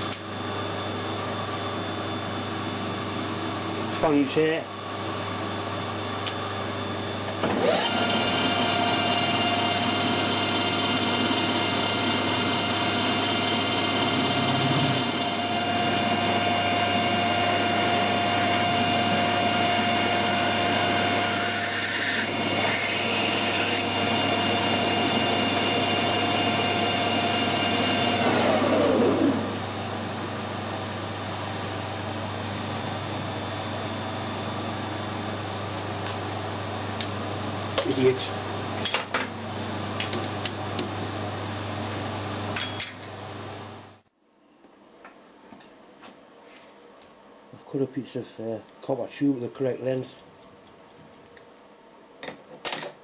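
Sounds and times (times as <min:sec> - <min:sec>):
metal lathe whining: 0:07.3 - 0:29.6
drill boring into brass: 0:18.4 - 0:28.4.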